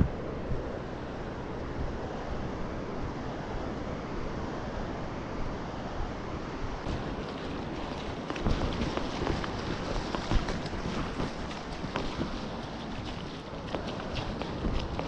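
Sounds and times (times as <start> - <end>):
wind rumbling on microphone: 0.0 - 15.0
ocean surf washing on beach: 5.6 - 15.0.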